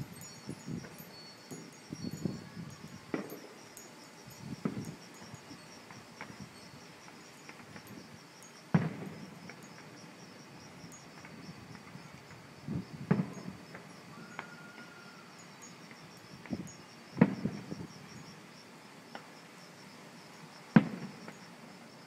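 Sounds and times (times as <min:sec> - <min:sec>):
crickets chirping: 0:00.0 - 0:22.0
distant fireworks bangs: 0:04.5 - 0:04.9, 0:08.7 - 0:10.0, 0:13.0 - 0:13.9, 0:17.2 - 0:17.7, 0:20.7 - 0:21.4.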